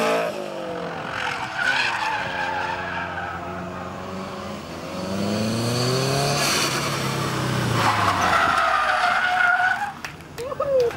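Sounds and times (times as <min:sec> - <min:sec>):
car engine revving: 0:00.0 - 0:08.9.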